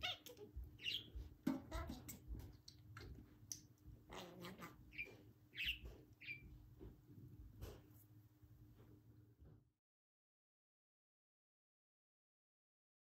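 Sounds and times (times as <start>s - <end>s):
budgerigar chattering: 0.0s - 1.1s, 4.2s - 6.4s.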